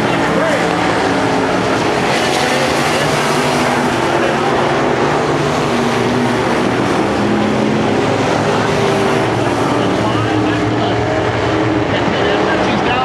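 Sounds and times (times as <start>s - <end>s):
race car engines passing: 0.0s - 13.0s
steady wash of noise: 0.0s - 13.0s.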